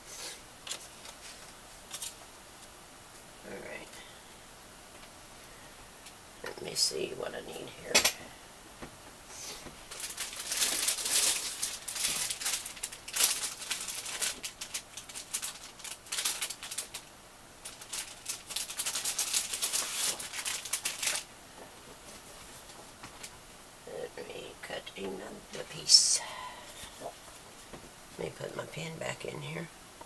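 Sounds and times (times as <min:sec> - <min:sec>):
paper rustling and shuffling: 0:00.6 - 0:02.3, 0:09.3 - 0:23.4.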